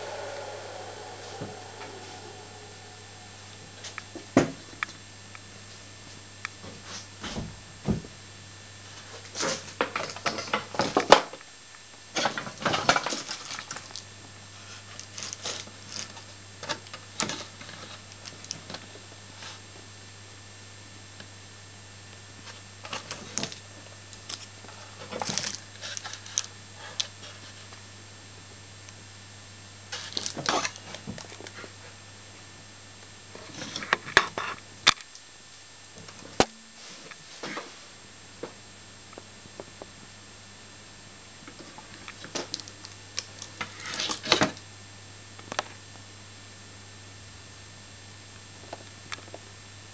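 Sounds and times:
steady low hum: 0:00.0 - 0:06.6.

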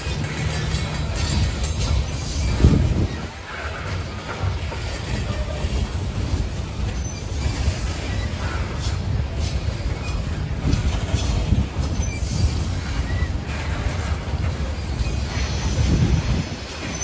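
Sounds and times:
steel wheels rumbling on rail: 0:00.0 - 0:17.0
faint wheel squeal: 0:04.8 - 0:17.0.

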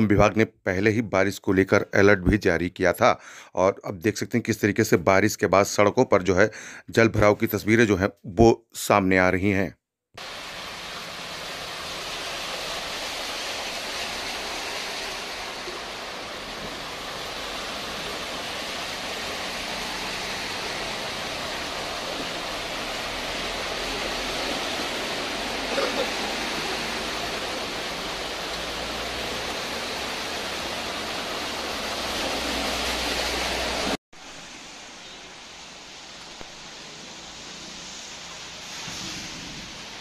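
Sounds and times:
rushing hiss of wet street: 0:10.2 - 0:40.0
vehicles splashing through water: 0:10.2 - 0:40.0.

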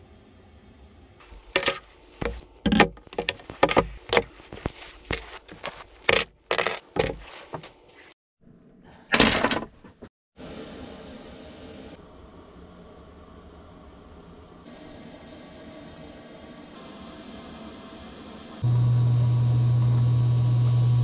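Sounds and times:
knocks clicks and clunks: 0:01.6 - 0:07.7.

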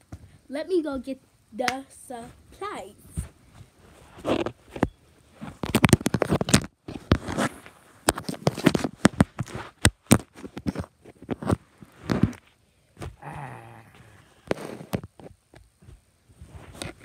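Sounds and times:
phone rubbing on microphone: 0:03.1 - 0:06.6.

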